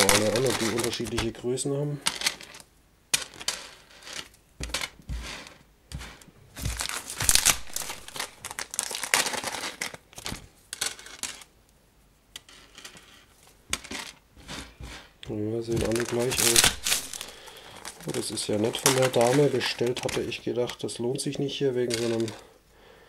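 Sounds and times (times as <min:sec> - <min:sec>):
plastic bags crinkling: 0:00.0 - 0:01.4, 0:06.1 - 0:11.5, 0:15.6 - 0:22.5.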